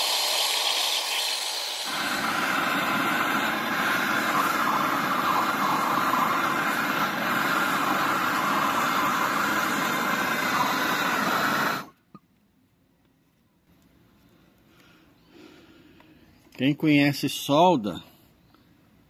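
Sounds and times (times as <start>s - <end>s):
gas torch hissing: 0.0s - 12.0s.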